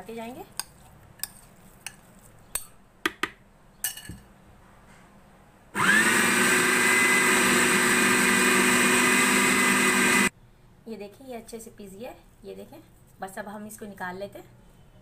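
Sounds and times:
electric food chopper grinding: 0:05.8 - 0:10.3.

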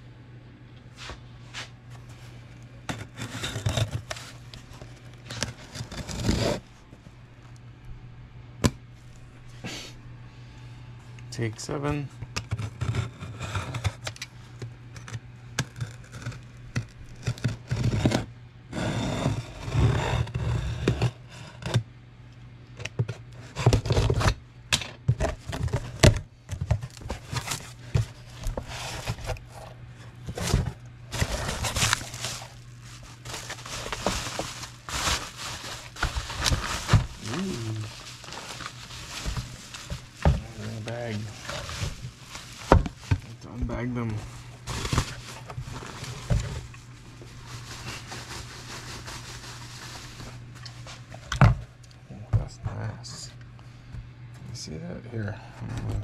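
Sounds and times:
packaging tearing and crinkling: 0:03.0 - 0:06.6, 0:30.3 - 0:43.4, 0:44.2 - 0:50.4.

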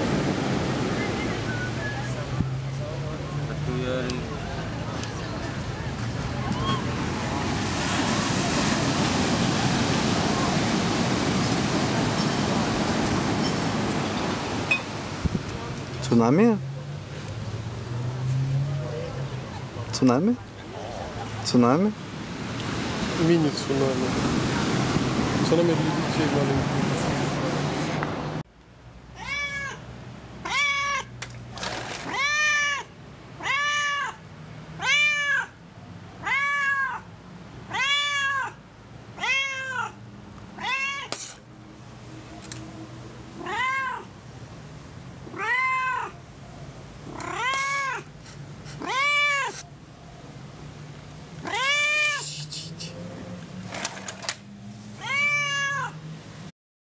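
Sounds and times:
cat meowing: 0:29.2 - 0:29.8, 0:30.4 - 0:31.1, 0:32.0 - 0:34.2, 0:34.8 - 0:35.6, 0:36.2 - 0:37.1, 0:37.7 - 0:38.6, 0:39.2 - 0:40.0, 0:40.6 - 0:41.2, 0:43.4 - 0:44.1, 0:45.2 - 0:46.2, 0:47.1 - 0:48.1, 0:48.8 - 0:49.7, 0:51.4 - 0:52.3, 0:55.0 - 0:56.0.

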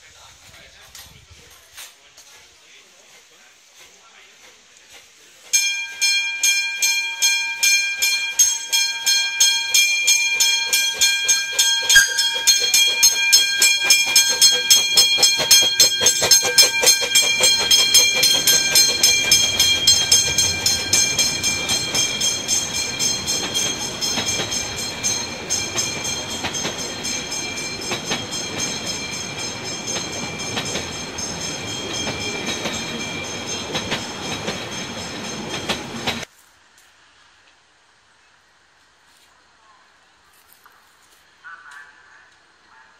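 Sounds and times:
steam locomotive chuffing beats: 0:03.2 - 0:36.3
wheels clattering on track: 0:04.4 - 0:36.3
steam locomotive whistle: 0:11.5 - 0:26.6.

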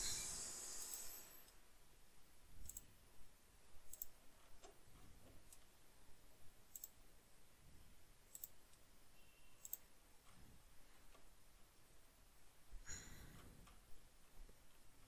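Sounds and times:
computer mouse clicks: 0:02.6 - 0:02.9, 0:03.9 - 0:04.8, 0:06.7 - 0:07.0, 0:08.3 - 0:08.8, 0:09.6 - 0:10.4.

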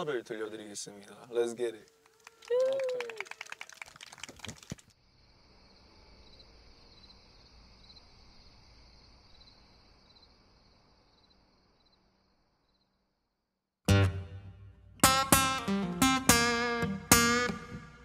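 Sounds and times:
hand claps: 0:02.0 - 0:04.9
crickets chirping: 0:04.6 - 0:13.4.

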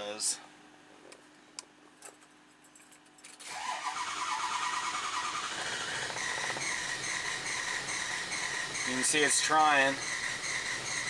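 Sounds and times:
diesel engine starter cranking: 0:03.4 - 0:11.0.

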